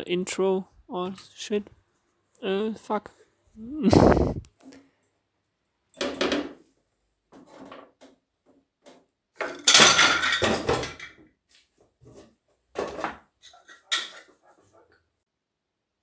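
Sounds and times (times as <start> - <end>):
wooden panels clattering: 8.8 - 11.2.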